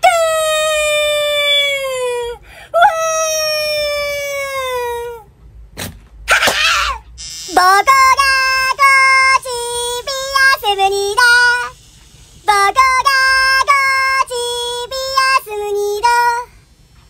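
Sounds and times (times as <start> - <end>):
high voice singing: 6.3 - 16.5.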